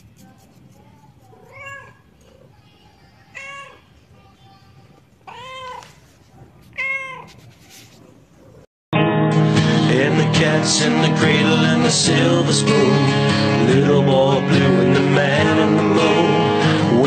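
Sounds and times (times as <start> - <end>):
cat meowing: 1.4 - 2.5, 3.3 - 3.8, 5.2 - 6.0, 6.7 - 7.4.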